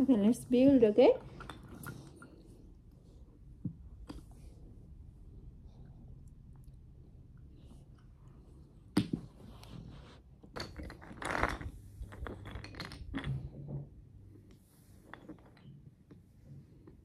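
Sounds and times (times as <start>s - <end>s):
toy blocks clattering: 10.6s - 13.6s.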